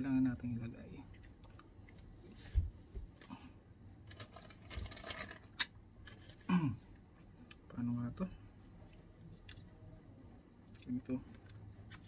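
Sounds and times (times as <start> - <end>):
packaging rustling and scraping: 4.1 - 5.5.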